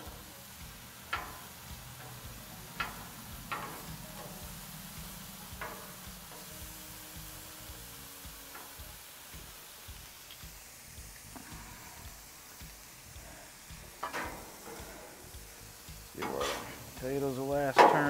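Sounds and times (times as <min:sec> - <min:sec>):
food sizzling on griddle: 0:00.0 - 0:18.0
steel tongs clicking: 0:02.8 - 0:04.4.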